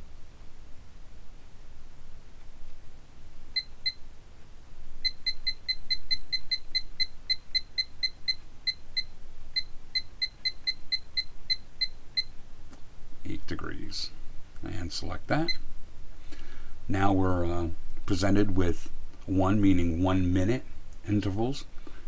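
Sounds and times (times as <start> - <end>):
electronic key beeps: 5.0 - 12.3.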